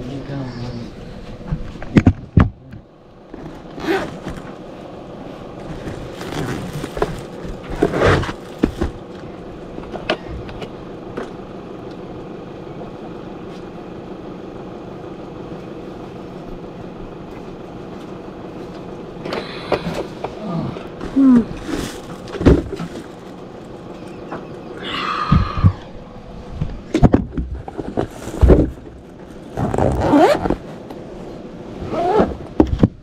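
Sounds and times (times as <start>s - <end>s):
steady low hum: 0.0s - 33.0s
handling rustles: 3.3s - 9.4s, 21.0s - 24.4s, 27.6s - 30.8s.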